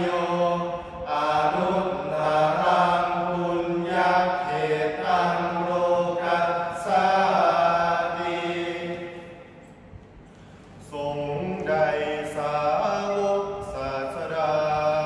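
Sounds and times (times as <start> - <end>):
men chanting in unison: 0.0 - 9.4, 10.8 - 15.0.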